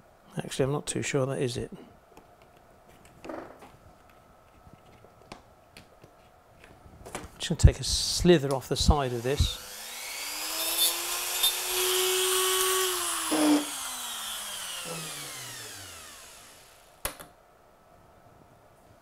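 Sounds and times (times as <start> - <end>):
rotary tool grinding: 9.1 - 17.0.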